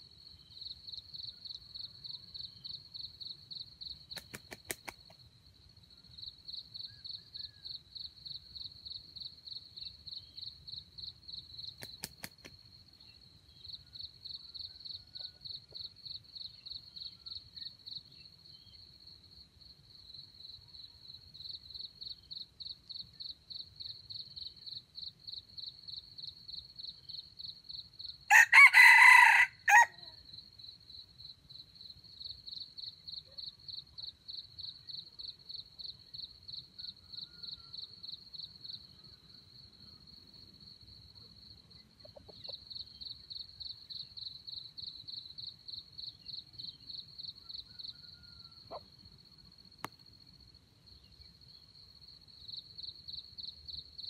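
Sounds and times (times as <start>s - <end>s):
crickets chirping: 0.0s - 54.0s
rooster crowing: 28.3s - 30.2s, 47.5s - 48.8s.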